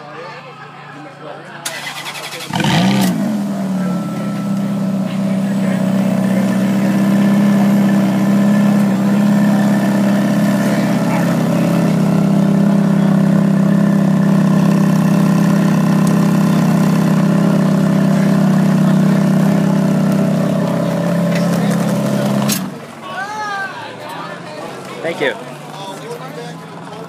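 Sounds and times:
car engine idling: 1.6s - 23.3s.

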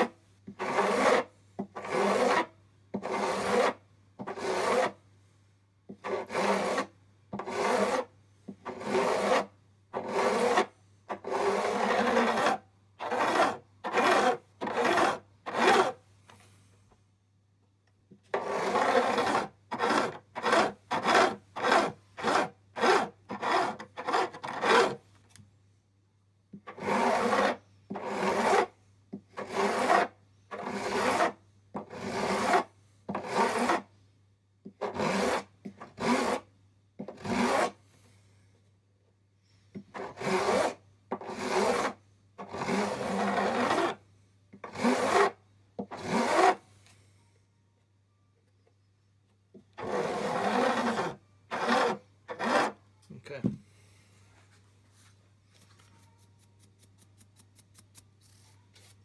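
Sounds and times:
file rasping on metal frets: 0.6s - 5.0s, 6.0s - 8.1s, 8.7s - 16.0s, 18.4s - 25.0s, 26.7s - 28.7s, 29.4s - 33.9s, 34.8s - 36.5s, 40.0s - 44.0s, 44.7s - 46.6s, 49.8s - 52.8s.

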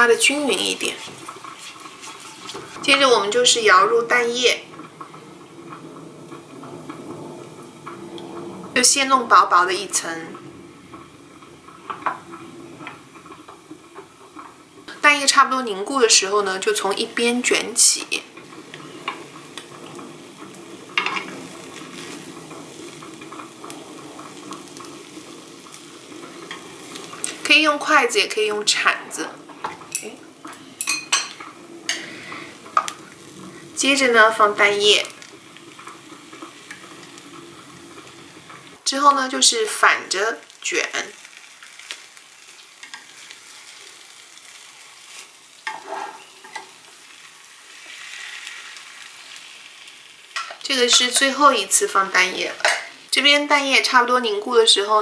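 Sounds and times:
egg sizzling in a pan: 0.0s - 55.0s.

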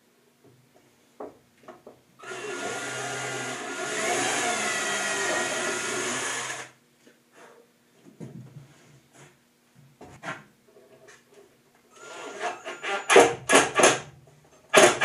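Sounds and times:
cordless drill drilling wood: 2.2s - 6.7s.

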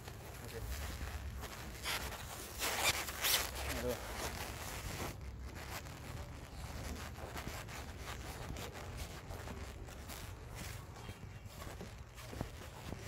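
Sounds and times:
rubbing and rustling: 0.0s - 13.0s
footsteps on concrete: 4.5s - 13.0s.

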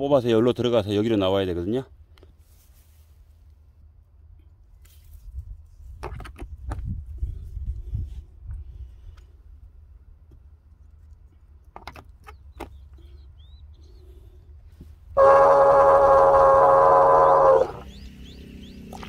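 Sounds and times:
water pump humming: 15.2s - 17.9s.

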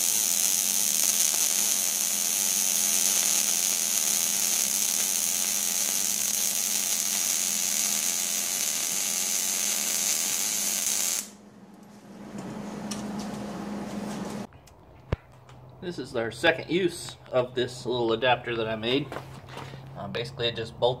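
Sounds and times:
welding arc crackling: 0.0s - 11.4s.

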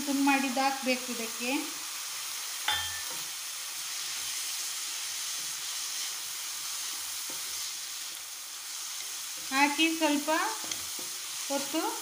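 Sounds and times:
food sizzling in a pan: 0.0s - 12.0s
sharp metal clink: 2.7s - 3.2s.

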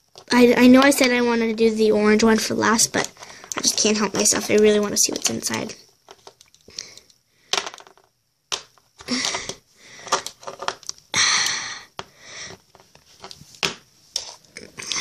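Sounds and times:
plastic clicks and crackles: 2.9s - 11.6s.

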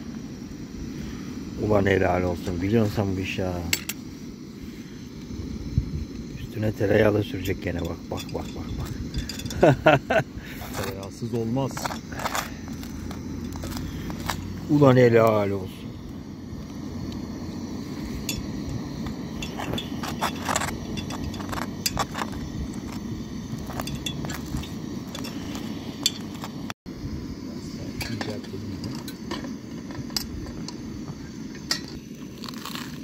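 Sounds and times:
crunch of toasted bread bitten: 32.3s - 33.0s.

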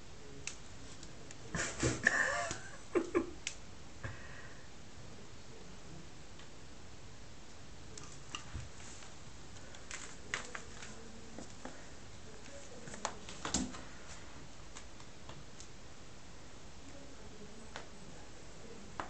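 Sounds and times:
steady low hiss: 0.0s - 19.0s
kitten paws tapping and scratching: 8.0s - 13.8s.

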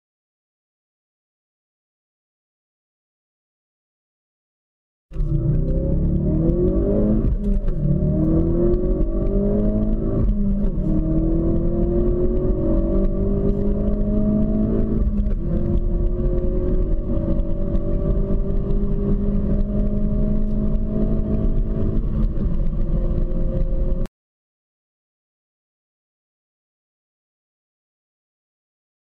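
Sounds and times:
car engine accelerating hard: 5.2s - 24.1s.

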